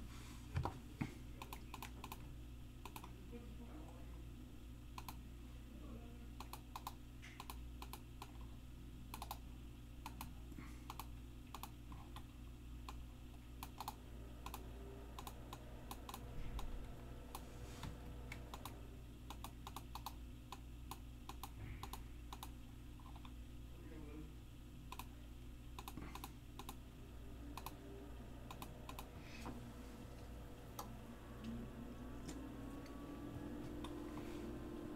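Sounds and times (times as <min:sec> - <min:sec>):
low hum: 0:00.0 - 0:34.9
keyboard typing: 0:01.4 - 0:02.2, 0:02.8 - 0:03.2, 0:06.4 - 0:08.5, 0:09.1 - 0:09.4, 0:10.0 - 0:13.0, 0:13.6 - 0:16.7, 0:18.3 - 0:23.4, 0:24.9 - 0:25.2, 0:25.8 - 0:26.8, 0:27.5 - 0:27.8, 0:28.5 - 0:29.2.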